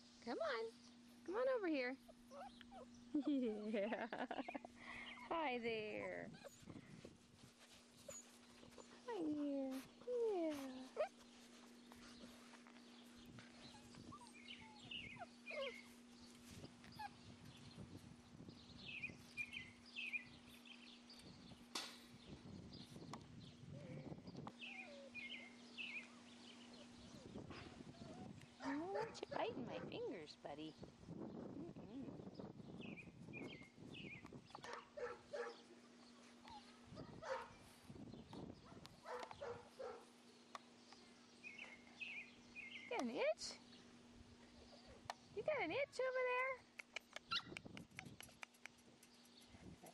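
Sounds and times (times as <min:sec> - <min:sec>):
faint low hum: 0:00.0 - 0:49.9
puppies whining and yipping: 0:02.1 - 0:03.7, 0:06.3 - 0:06.8, 0:07.7 - 0:09.0, 0:10.0 - 0:17.6, 0:24.5 - 0:28.4, 0:35.4 - 0:37.4, 0:47.2 - 0:48.3
animal chirps and squeaks: 0:02.3 - 0:03.2, 0:13.5 - 0:17.8, 0:47.0 - 0:49.9
puppy high squeaks: 0:47.2 - 0:48.4.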